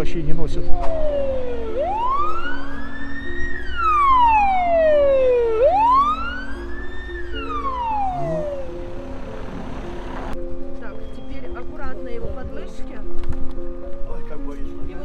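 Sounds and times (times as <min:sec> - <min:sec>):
background music: 0:00.0 - 0:15.0
ambulance siren wailing: 0:00.8 - 0:10.4.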